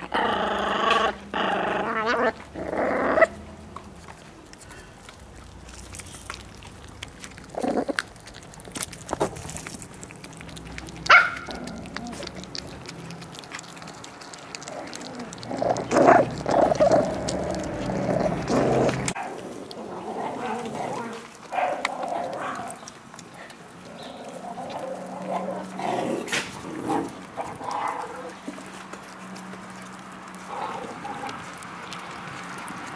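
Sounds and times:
puppies growling and yapping: 0.0 - 32.9
puppy yelp: 11.0 - 12.3.

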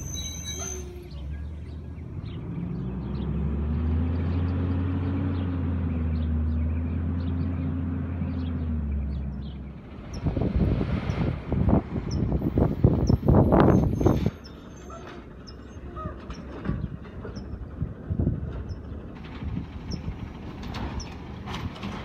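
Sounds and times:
truck diesel engine pulling away: 0.0 - 22.0
wind buffeting microphone: 9.4 - 14.5, 16.1 - 22.0.

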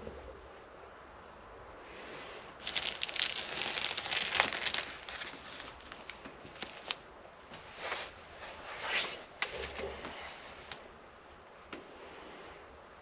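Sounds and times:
plastic film crinkling: 2.6 - 7.1.

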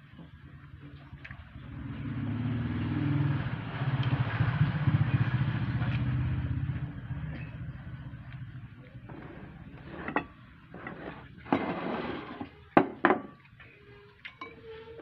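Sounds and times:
vehicle engine passing by: 0.7 - 12.3.

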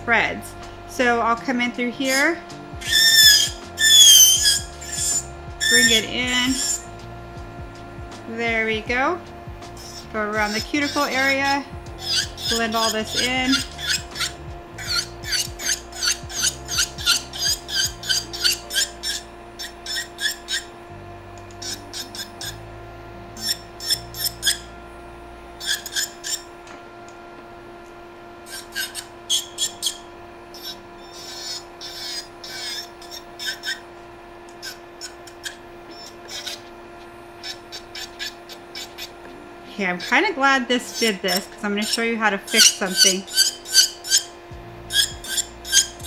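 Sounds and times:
electric nail file humming: 0.0 - 46.0
file rasping against nail: 2.8 - 6.9, 9.6 - 20.7, 21.5 - 22.6, 23.4 - 24.7, 25.6 - 26.5, 28.5 - 33.9, 34.5 - 36.7, 37.4 - 39.2, 40.9 - 44.3, 44.9 - 46.0.

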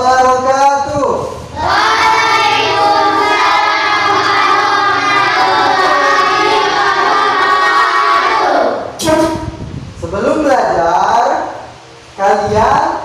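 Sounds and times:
children chanting in unison: 1.6 - 9.0.

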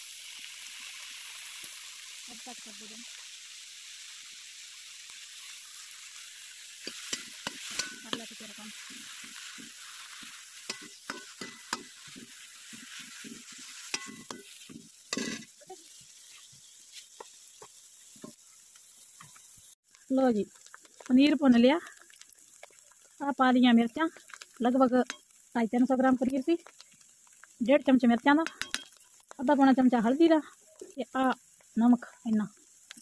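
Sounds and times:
food sizzling in hot oil: 0.0 - 33.0
metal ladle scraping pan: 6.8 - 15.6.

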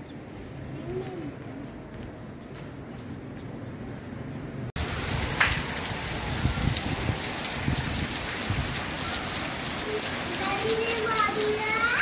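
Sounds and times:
heavy rain on paving: 4.8 - 12.0
rain splashes: 4.8 - 12.0.

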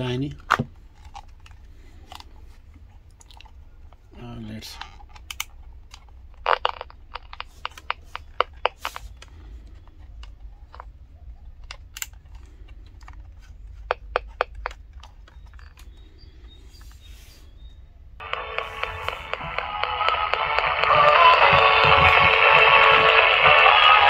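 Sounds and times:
fingers clicking plastic radio: 4.8 - 16.5, 18.2 - 24.0.

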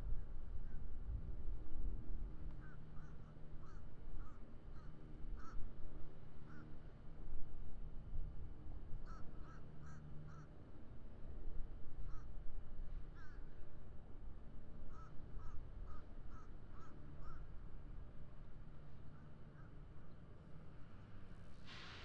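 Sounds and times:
crow cawing: 14.9 - 17.5.

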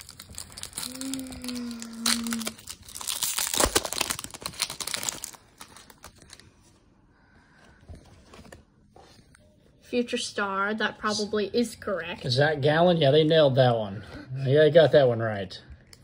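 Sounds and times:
foil wrapper tearing and crinkling: 0.0 - 6.4
faint wrapper rustling: 0.0 - 6.8.

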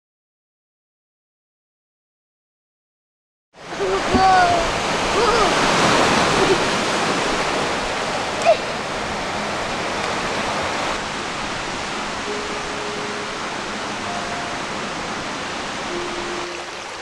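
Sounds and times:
surf washing onto shore: 3.6 - 17.0
faint held tones: 12.3 - 17.0.

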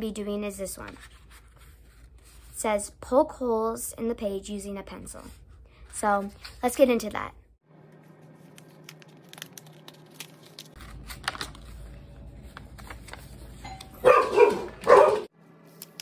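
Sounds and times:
dogs barking: 14.0 - 15.3.

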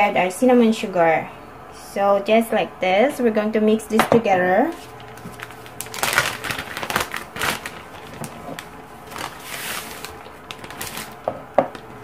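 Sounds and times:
plastic bag crinkling: 4.7 - 12.0.

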